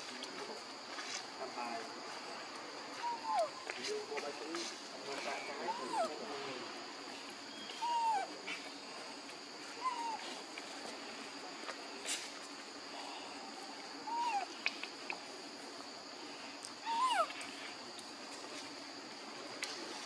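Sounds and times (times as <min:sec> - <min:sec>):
baby macaque crying: 0:03.0 - 0:03.6, 0:05.6 - 0:06.1, 0:07.8 - 0:08.3, 0:09.7 - 0:10.3, 0:14.0 - 0:14.6, 0:16.8 - 0:17.4.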